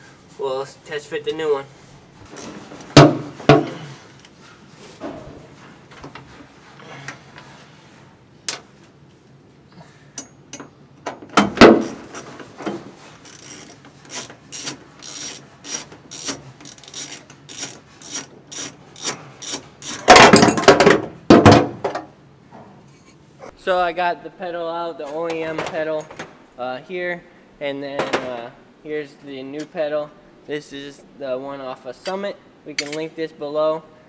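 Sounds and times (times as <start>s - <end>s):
metal knocks and rattling: 2.3s - 3.8s, 20.0s - 22.7s
socket ratchet clicking: 13.3s - 20.0s.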